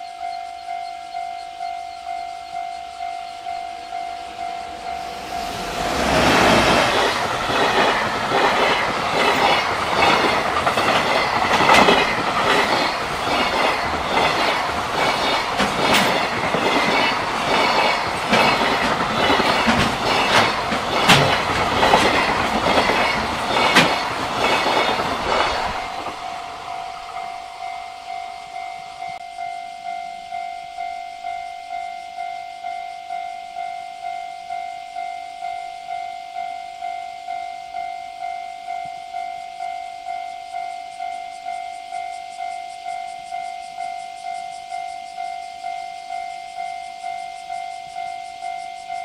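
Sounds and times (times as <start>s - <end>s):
freight train rumbling past: 3.0s - 29.2s
wheels clacking over rail joints: 4.7s - 27.2s.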